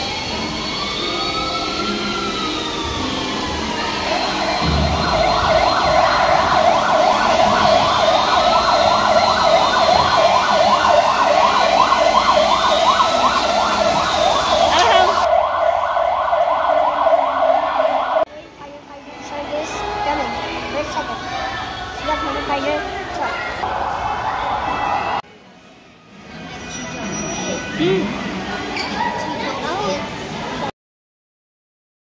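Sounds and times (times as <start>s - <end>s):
siren fast yelping sweep: 0.0s - 18.2s
siren slow wail: 0.0s - 18.3s, 23.6s - 25.2s.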